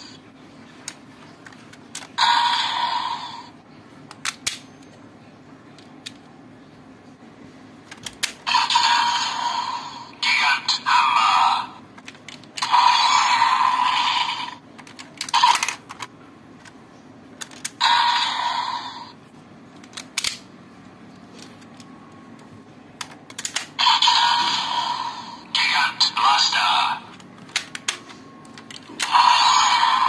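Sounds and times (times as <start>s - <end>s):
plastic toy parts clicking: 0.8s - 2.2s, 4.1s - 4.9s, 7.9s - 8.6s, 14.8s - 16.8s, 17.4s - 17.8s, 19.8s - 20.5s, 21.4s - 23.8s, 27.1s - 29.5s.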